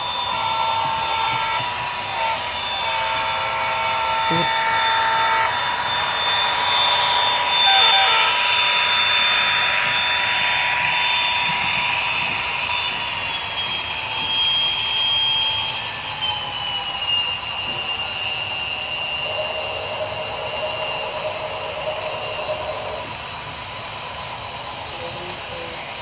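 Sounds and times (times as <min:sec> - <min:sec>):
electric motors whining: 0:00.0 - 0:26.0
model train wheels rumbling: 0:17.6 - 0:26.0.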